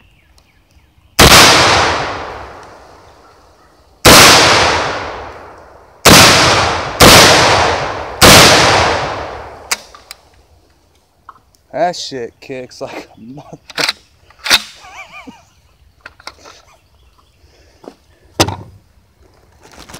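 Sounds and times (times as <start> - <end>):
shotgun shots with echo: 1.2 - 2.6, 4.0 - 9.9.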